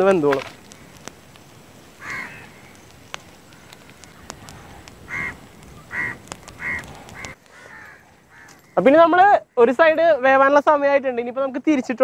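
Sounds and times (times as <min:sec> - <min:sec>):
faint clicks: 0:00.3 - 0:08.8
crow cawing: 0:02.0 - 0:02.8, 0:03.4 - 0:08.8.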